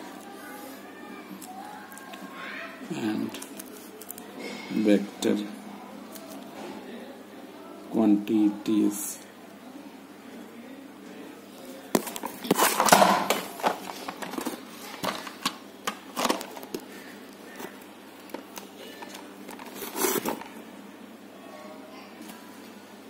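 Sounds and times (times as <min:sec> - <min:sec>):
paper rustling and crinkling: 0:11.9 - 0:20.6.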